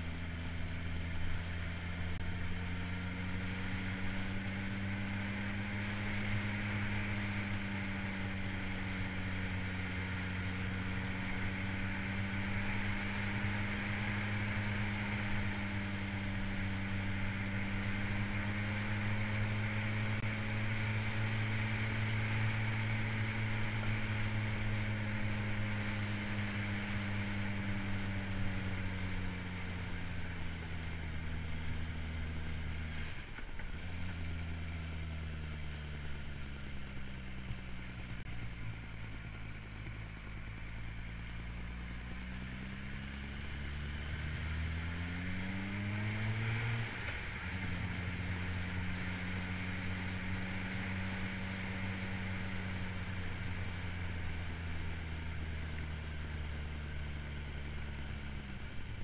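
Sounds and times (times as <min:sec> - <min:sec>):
vehicle engine revving: 0:00.0 - 0:59.0.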